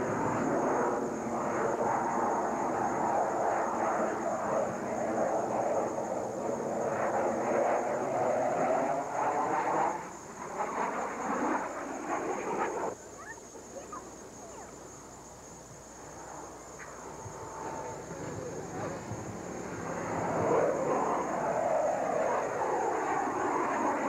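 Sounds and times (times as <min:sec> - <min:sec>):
aircraft engine drone: 0:00.0 - 0:13.0, 0:15.3 - 0:24.0
faint chirps: 0:12.3 - 0:15.2.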